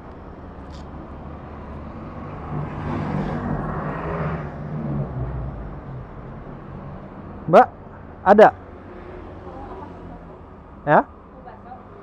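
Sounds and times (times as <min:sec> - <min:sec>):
low traffic rumble: 0:00.0 - 0:12.0
vehicle passing close by: 0:01.2 - 0:07.3.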